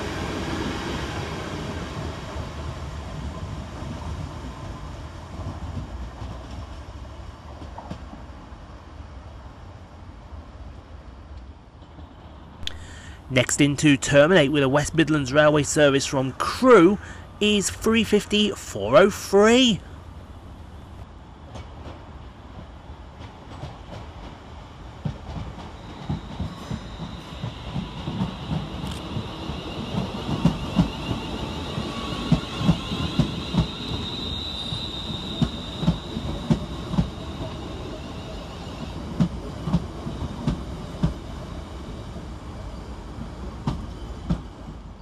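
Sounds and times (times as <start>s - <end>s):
train wheels clickety-clack: 7.4s - 8.2s, 21.4s - 37.7s, 39.0s - 41.4s, 43.6s - 44.9s
train rumble: 11.3s - 45.0s
high steady squeal: 25.8s - 39.0s.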